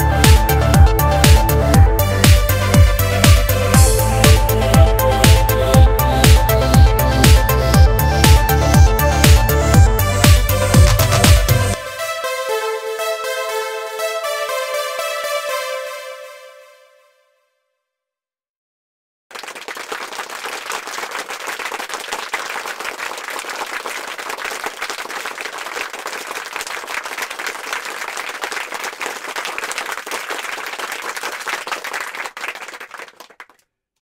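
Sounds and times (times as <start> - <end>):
crowd applauding: 19.3 - 33.6.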